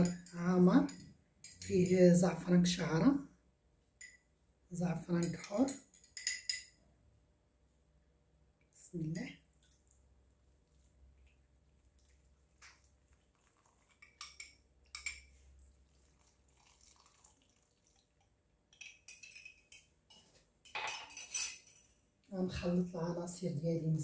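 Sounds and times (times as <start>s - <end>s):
spoon clinking against glass: 5.2s - 6.8s, 14.0s - 15.4s, 18.7s - 21.9s.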